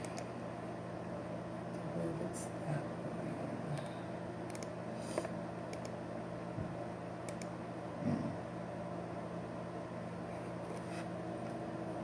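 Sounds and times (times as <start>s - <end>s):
keyboard and mouse clicks: 0.0s - 0.3s, 4.5s - 6.0s, 7.3s - 7.5s
steady low hum: 0.0s - 12.0s.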